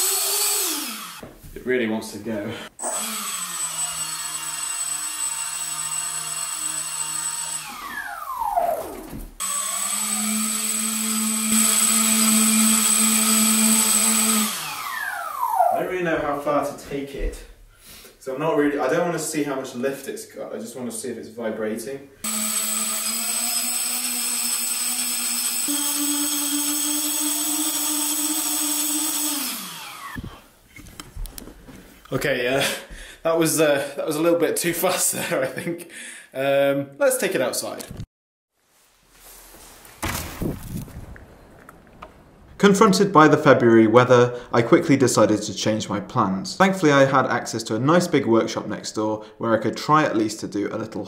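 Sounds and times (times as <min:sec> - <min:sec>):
electric motors whining: 0:02.8 - 0:15.9, 0:22.3 - 0:30.4.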